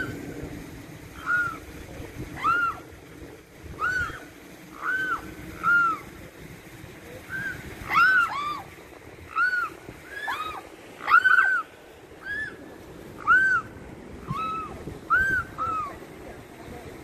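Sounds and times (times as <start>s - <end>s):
swan cygnets piping: 9.3s - 12.6s.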